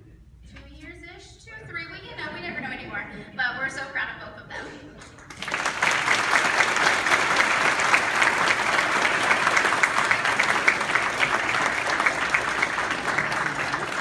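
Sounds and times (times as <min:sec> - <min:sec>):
crowd applauding: 0:05.2 - 0:14.0.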